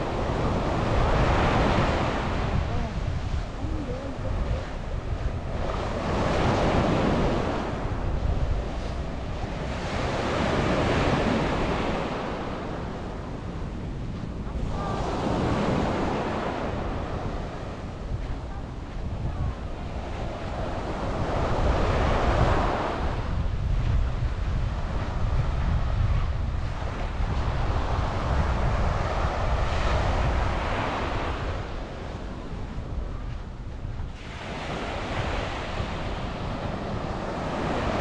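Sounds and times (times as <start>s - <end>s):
waves breaking on beach: 0.0s - 38.0s
wind rumbling on microphone: 0.0s - 38.0s.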